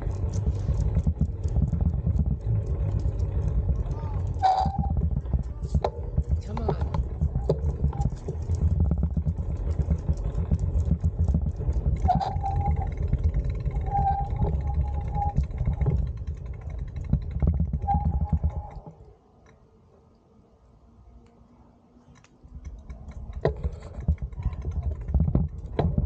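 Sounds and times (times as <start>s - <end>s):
wind buffeting microphone: 0.0s - 18.8s
bicycle tyres rolling on asphalt: 0.0s - 20.0s, 21.0s - 26.0s
short thin squeak: 4.3s - 5.0s, 12.0s - 15.8s.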